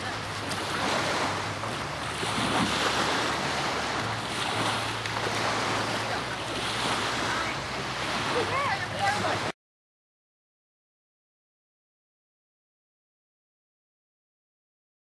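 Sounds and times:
small waves lapping at shore: 0.0 - 9.6.

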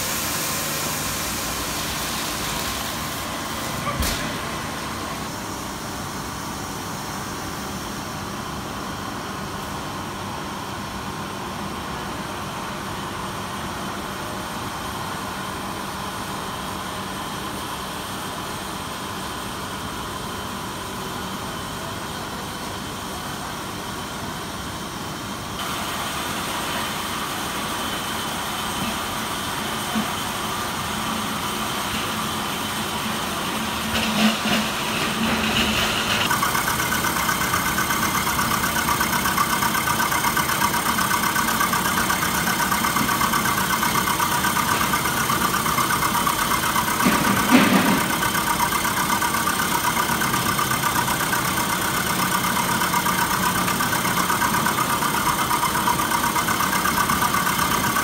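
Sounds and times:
factory machinery humming: 0.0 - 58.0.

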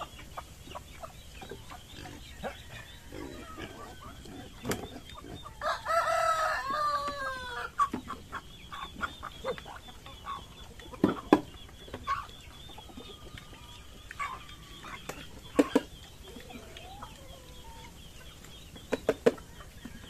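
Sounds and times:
hens clucking: 0.0 - 20.0
rooster crowing: 2.4 - 4.3, 5.6 - 7.7.

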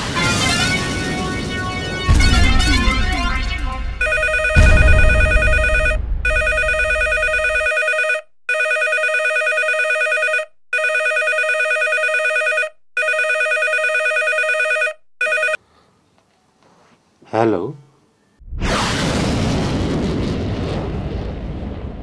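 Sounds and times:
electronic telephone ringing: 0.5 - 15.6
low rumble: 1.5 - 7.7.

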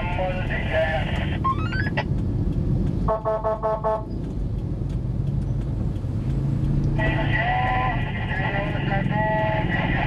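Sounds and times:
engines and traffic rumble: 0.0 - 10.0
vehicle horn toots: 3.1 - 4.1.

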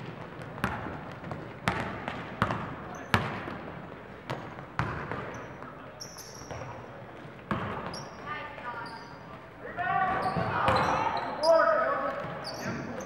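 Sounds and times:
basketball bouncing: 0.0 - 3.6, 4.3 - 5.4, 7.5 - 8.0
shoe squeaks: 5.3 - 6.6, 7.9 - 9.3, 12.4 - 13.0.

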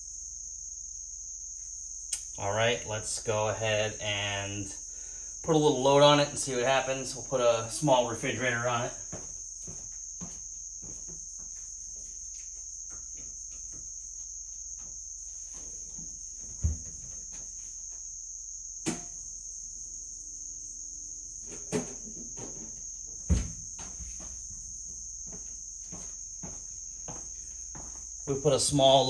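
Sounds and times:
sharp knocks and clunks: 21.6 - 24.2.

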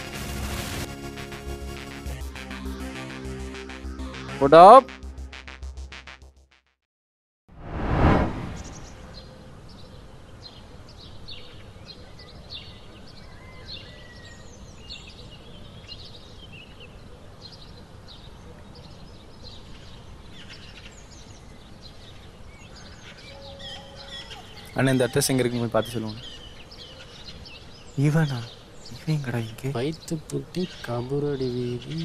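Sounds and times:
birds chirping: 8.6 - 32.0.

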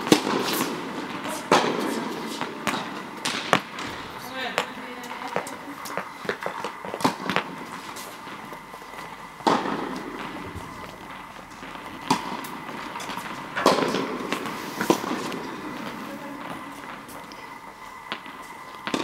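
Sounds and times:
tennis ball hits: 0.0 - 4.1, 9.4 - 10.2, 12.0 - 15.4.

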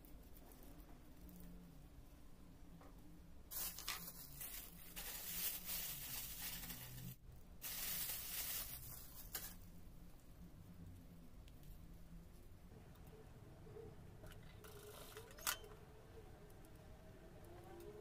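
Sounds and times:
plastic bag crinkling: 3.5 - 9.6.

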